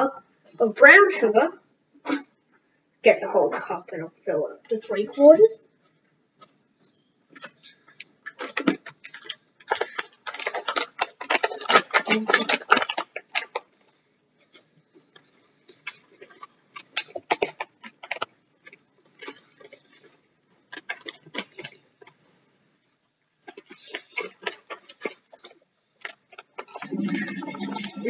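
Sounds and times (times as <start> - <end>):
plastic bag crinkling: 7.4 - 22.2, 23.4 - 28.0.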